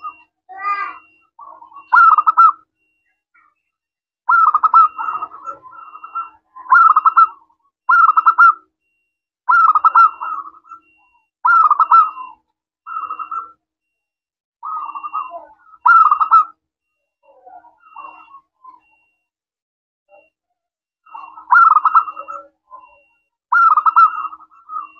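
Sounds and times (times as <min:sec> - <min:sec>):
dove cooing: 0:00.0 - 0:02.6, 0:04.3 - 0:08.6, 0:09.5 - 0:13.5, 0:14.6 - 0:16.6, 0:17.2 - 0:19.0, 0:21.1 - 0:24.9.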